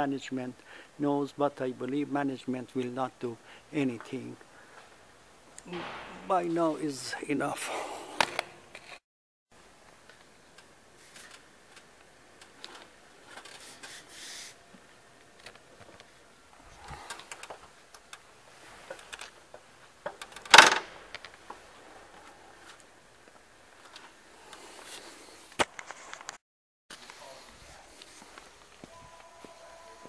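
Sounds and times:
sharp knock: 5.7 - 6.6
faint clicks and rattles: 16.9 - 21.6.

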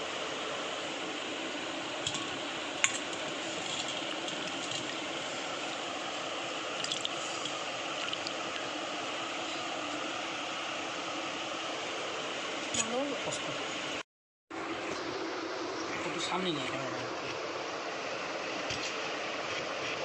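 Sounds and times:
steady fan-like hiss: 0.0 - 20.0
light clicks and wet sounds: 2.0 - 6.0, 6.7 - 10.2.

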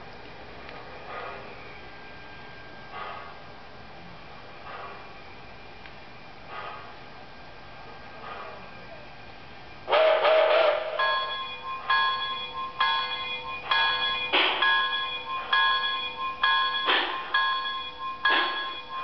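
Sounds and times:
electronic locomotive bell ringing: 10.4 - 19.0.

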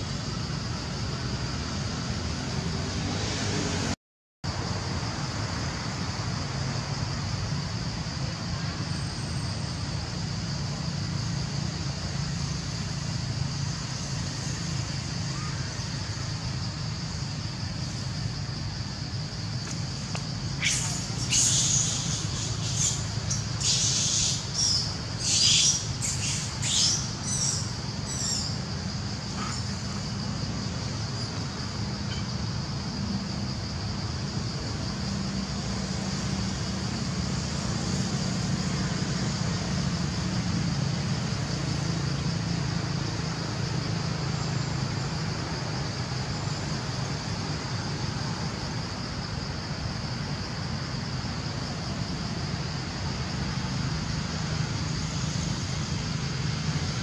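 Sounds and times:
steady high hiss: 0.0 - 57.0
shrill animal calls: 20.6 - 28.6.

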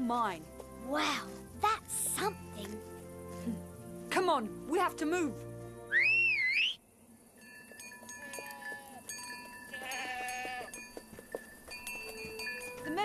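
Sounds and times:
small bells ringing: 7.1 - 13.0
goats bleating: 9.7 - 10.7.

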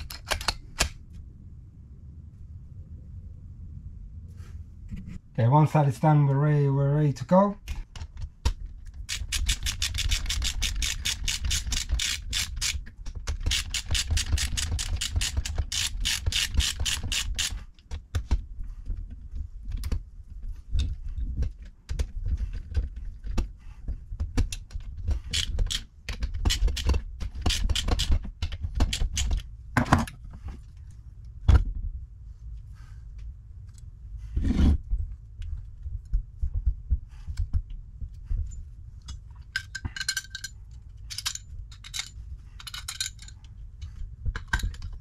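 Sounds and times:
screwdriver clicking: 9.1 - 17.6.

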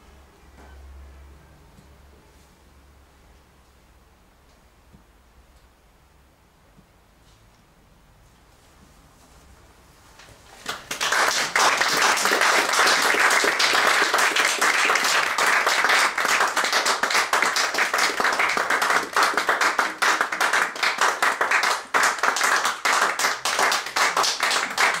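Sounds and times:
audience applauding: 10.6 - 25.0.

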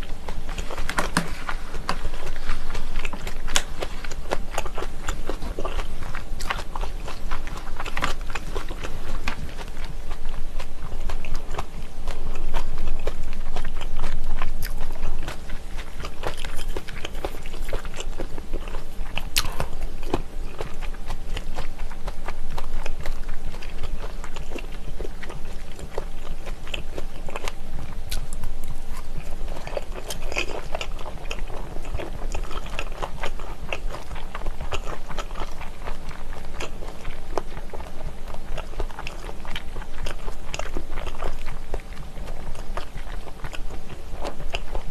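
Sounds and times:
close chewing and crunching: 0.0 - 44.9
steady low hum: 0.0 - 44.9.

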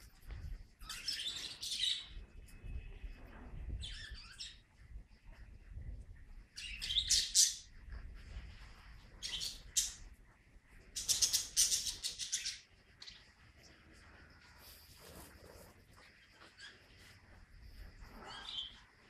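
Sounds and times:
birds chirping: 9.1 - 10.1, 10.8 - 14.8, 16.0 - 19.0.

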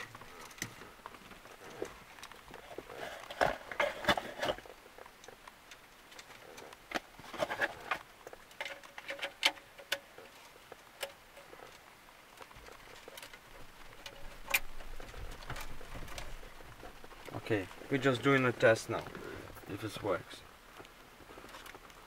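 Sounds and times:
cables rustling: 0.0 - 22.0
metal case clicks and scrapes: 1.6 - 5.4, 6.2 - 10.2.

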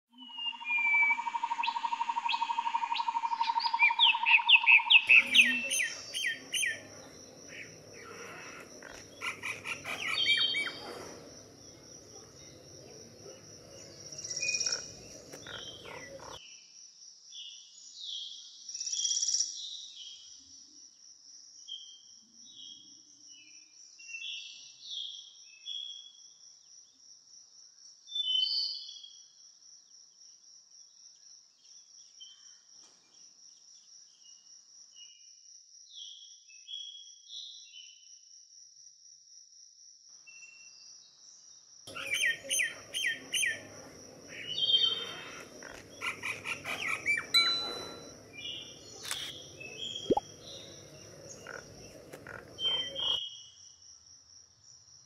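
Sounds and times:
chirping bird calls: 0.2 - 16.4, 41.9 - 53.2
high-pitched insect trill: 0.5 - 16.4
rapid chirps: 41.9 - 53.2
steady tone: 47.3 - 50.7.

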